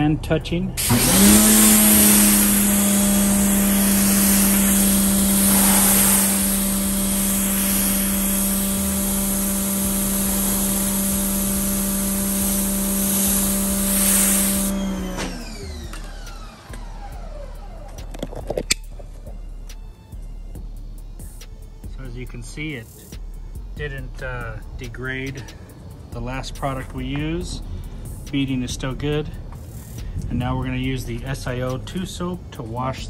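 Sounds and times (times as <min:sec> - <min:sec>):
water jet hissing: 0:00.8 - 0:15.7
pressure washer motor hum: 0:00.8 - 0:19.4.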